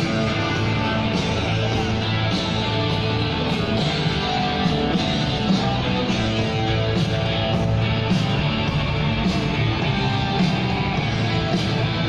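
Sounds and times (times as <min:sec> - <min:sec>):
rock music with electric guitar: 0:00.0 - 0:12.0.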